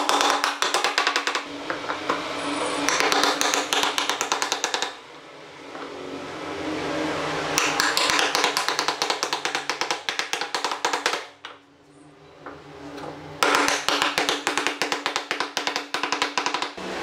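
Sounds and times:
mallet tapping wood pieces: 0:00.0 - 0:02.2, 0:02.9 - 0:05.0, 0:07.6 - 0:11.6, 0:13.4 - 0:16.8.

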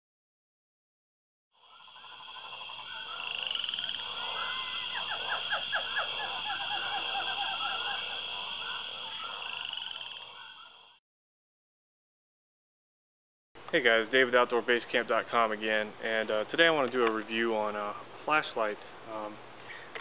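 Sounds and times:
rapidly pulsed animal calls: 0:01.5 - 0:11.0.

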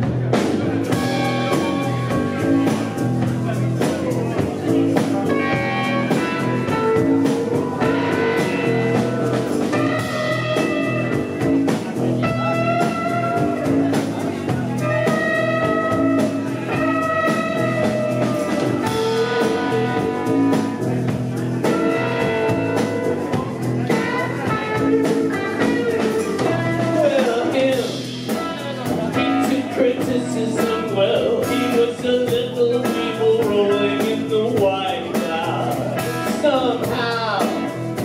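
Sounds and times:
bass guitar: 0:00.0 - 0:38.0
drums: 0:00.0 - 0:38.0
electric guitar: 0:00.0 - 0:38.0
person singing: 0:14.8 - 0:20.9, 0:23.8 - 0:38.0.

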